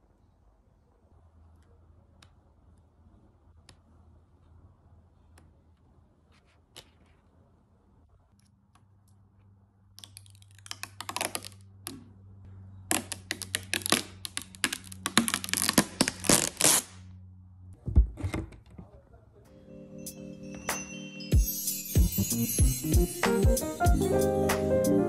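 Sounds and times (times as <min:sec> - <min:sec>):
paper packaging crinkling: 0:12.9 - 0:17.0.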